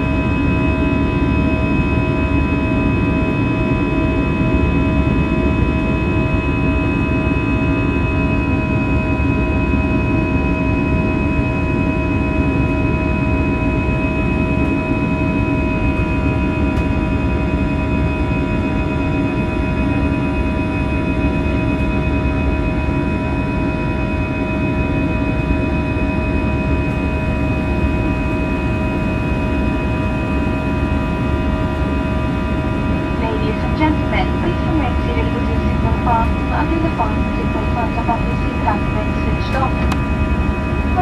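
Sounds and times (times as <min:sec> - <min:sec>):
jet engine roar in cabin: 0:00.0 - 0:41.0
engine fan whining tones: 0:19.4 - 0:41.0.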